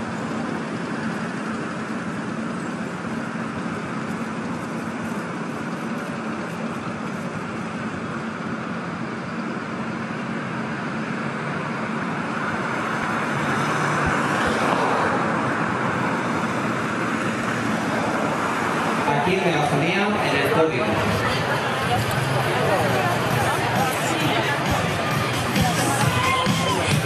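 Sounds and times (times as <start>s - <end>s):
tyres on road: 0.0s - 27.0s
car and motorcycle engines: 9.8s - 27.0s.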